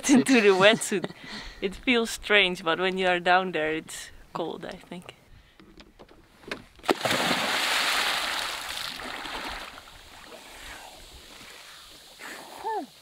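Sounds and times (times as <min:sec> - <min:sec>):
person splashing into water: 0:06.8 - 0:10.4
water hissing and sloshing: 0:07.0 - 0:13.0.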